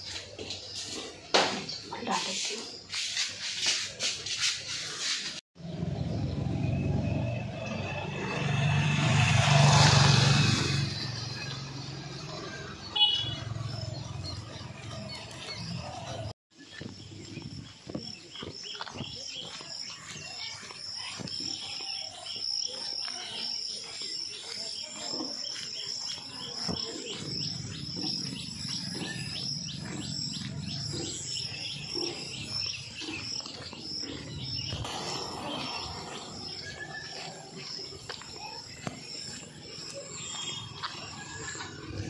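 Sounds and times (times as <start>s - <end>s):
footsteps on stony road: 0.0s - 5.4s, 10.9s - 42.0s
insects droning: 26.2s - 42.0s.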